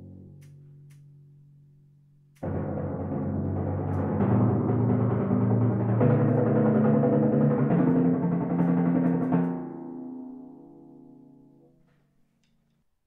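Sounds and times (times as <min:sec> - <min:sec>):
timpani roll: 0:02.4 - 0:10.6.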